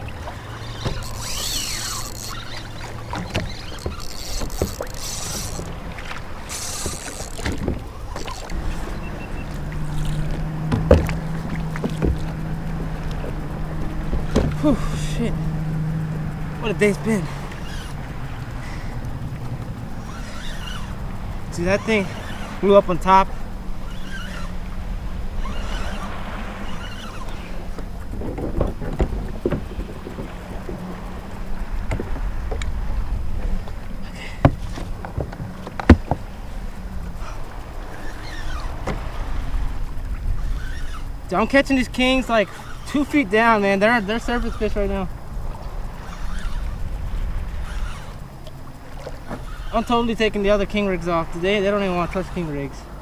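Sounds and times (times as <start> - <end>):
wind on microphone: 0.0 - 42.8
water slapping against kayak hull: 0.0 - 52.6
steady low hum: 0.0 - 53.0
fishing reel clicks and knocks: 0.8 - 5.8, 6.5 - 7.6, 16.7 - 19.2
knocks and clicks: 27.8 - 30.7.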